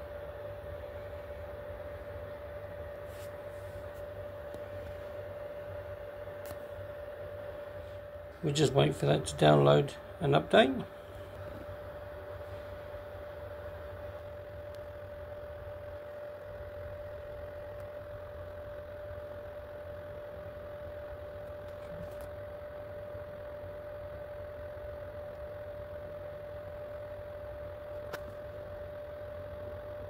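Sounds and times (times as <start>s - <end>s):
constant whine: 0.0s - 30.0s
cooling fans humming: 0.0s - 30.0s.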